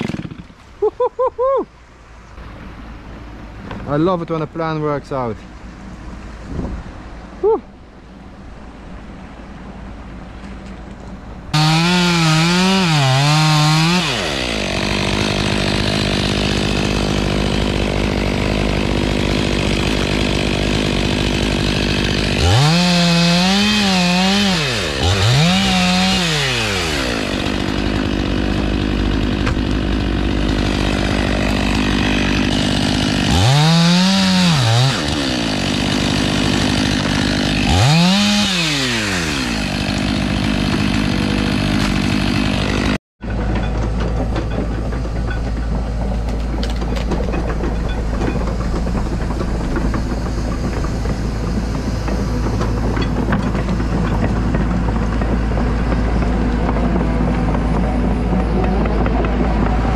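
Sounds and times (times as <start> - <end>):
chainsaw revving: 0.0 - 0.6, 11.5 - 43.0.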